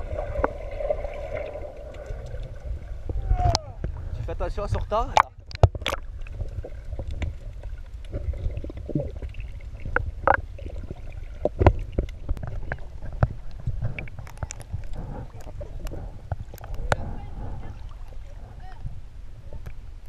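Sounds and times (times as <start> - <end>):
underwater rumble of moving water: 0.0 - 20.0
sharp underwater clicks and knocks: 5.0 - 18.2.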